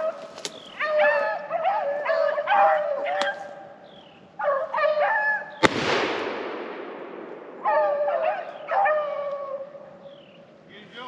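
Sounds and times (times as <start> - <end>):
dogs baying: 0.0 - 3.8, 4.4 - 5.6, 7.6 - 10.0
shotgun shot with echo: 5.6 - 8.1.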